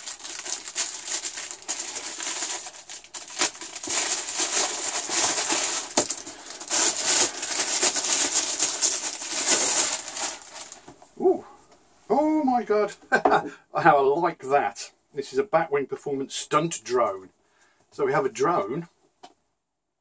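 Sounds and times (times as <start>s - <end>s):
plastic bag crinkling: 0.0s - 10.9s.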